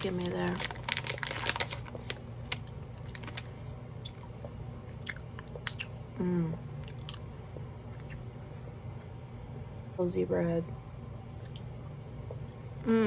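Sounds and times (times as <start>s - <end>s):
wet chewing and mouth clicks: 4.0s - 6.0s.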